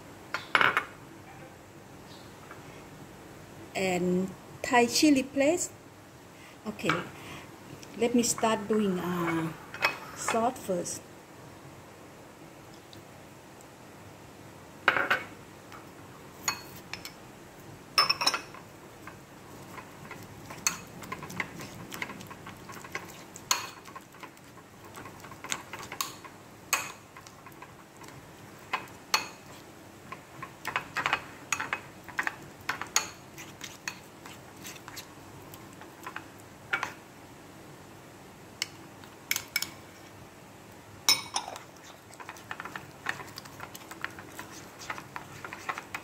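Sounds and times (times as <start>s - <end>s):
spoon clinking on ceramic bowls: 18.0s - 18.6s, 41.1s - 41.6s
spoon scraping bowl: 19.6s - 26.1s, 30.6s - 35.1s, 41.1s - 46.0s.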